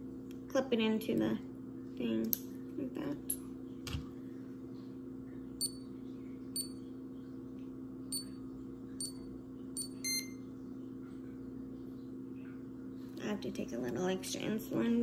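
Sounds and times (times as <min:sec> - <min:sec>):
steady low hum: 0:00.0 - 0:15.0
insulin pump beeping: 0:09.8 - 0:10.4.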